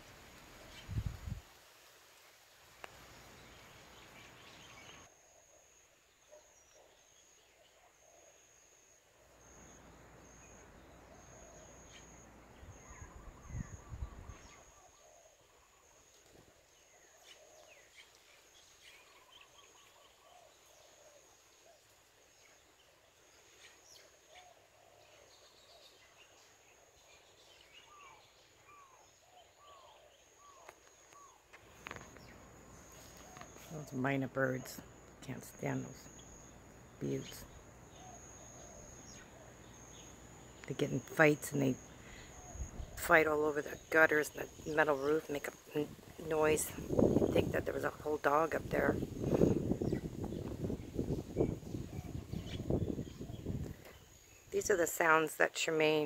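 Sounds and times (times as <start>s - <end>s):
wind buffeting microphone: 0.7s - 1.5s, 12.6s - 14.6s, 42.4s - 43.0s, 45.9s - 54.1s
bird calls: 3.2s - 56.0s.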